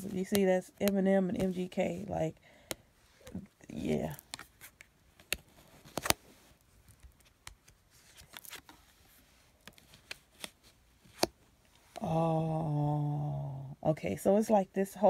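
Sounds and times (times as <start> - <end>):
cards tapping together: 4.1 - 6.2
woman vocalizing ohh: 12.0 - 13.8.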